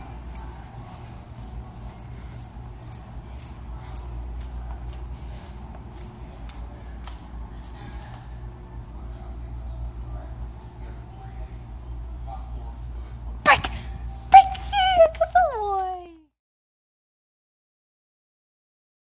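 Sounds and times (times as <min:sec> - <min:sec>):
steady low hum: 0:00.0 - 0:15.5
metallic clicks and jingles: 0:00.3 - 0:08.3.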